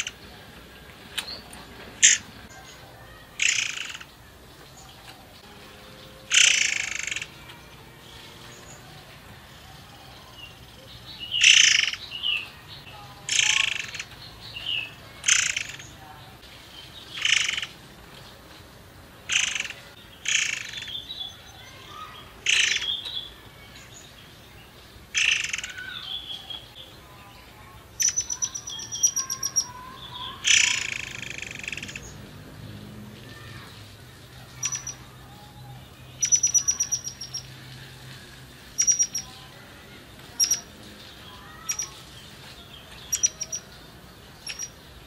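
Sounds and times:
faint bird chirps: 25.1s - 32.1s, 34.6s - 37.6s, 38.8s - 39.4s, 41.3s - 42.1s, 43.1s - 43.8s, 44.4s - 44.9s
songbird singing loud bursts: 36.2s - 37.6s.

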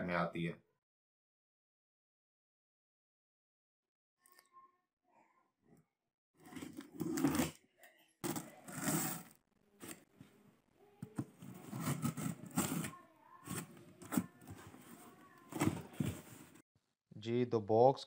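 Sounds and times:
knife cutting packing tape: 8.3s - 9.3s, 11.6s - 13.0s.

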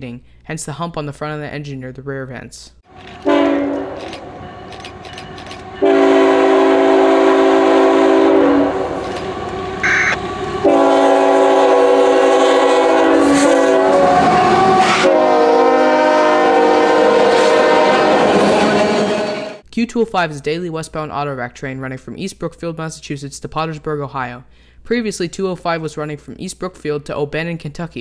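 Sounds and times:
freight cars rumbling on rails: 2.9s - 15.1s
locomotive air horn blasts: 3.1s - 4.0s, 5.7s - 9.1s, 9.8s - 19.6s.

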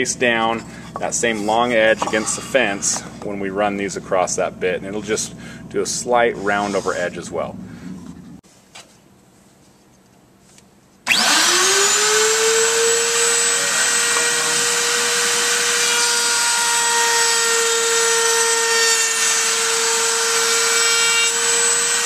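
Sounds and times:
router motor whine: 11.1s - 22.0s.

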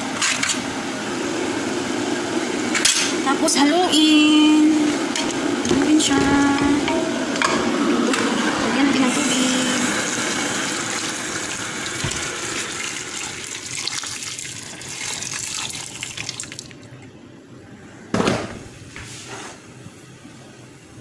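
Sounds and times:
water pouring into pot: 9.9s - 17.0s.

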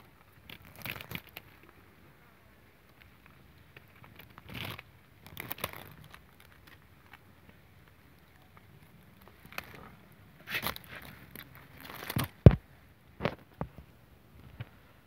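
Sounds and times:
cat crunching and tearing prey: 0.1s - 1.8s, 2.9s - 7.2s, 9.2s - 12.5s.

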